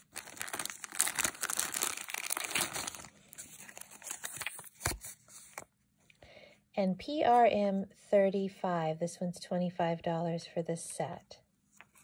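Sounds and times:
plastic bags crinkling: 0.0 - 4.6.

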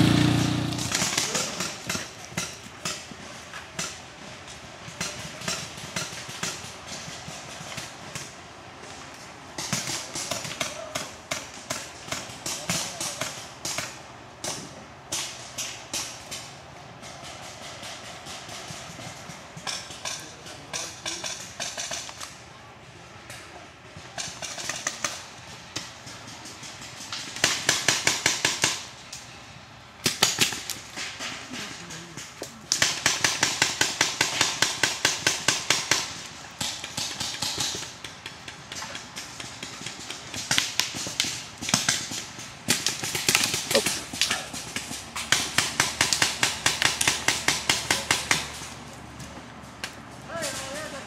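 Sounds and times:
paintball markers firing: 32.7 - 48.5.

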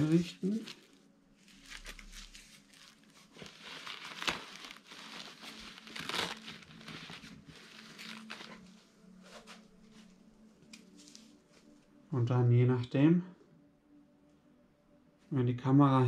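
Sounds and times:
camera bag rustling and crinkling: 0.5 - 9.7.

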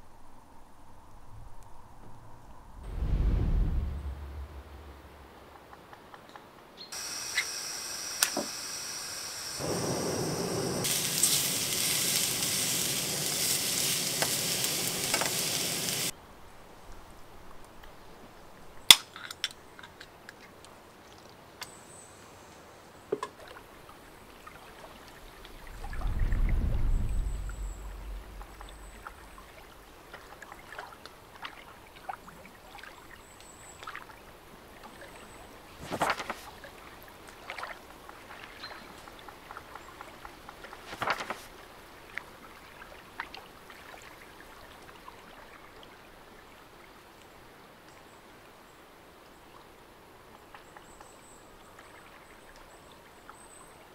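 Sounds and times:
soft water sounds: 0.1 - 6.2, 19.9 - 21.6, 22.2 - 53.9
low rumble: 1.0 - 5.6, 25.3 - 30.0.

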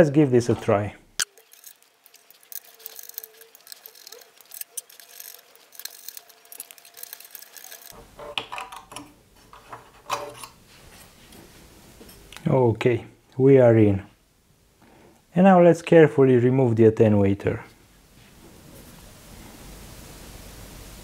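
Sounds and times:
metal cover clicks and scrapes: 1.2 - 10.6.

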